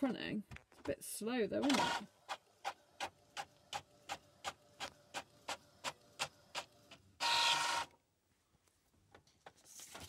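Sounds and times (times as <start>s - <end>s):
printer motor whirring: 1.6s - 8.0s.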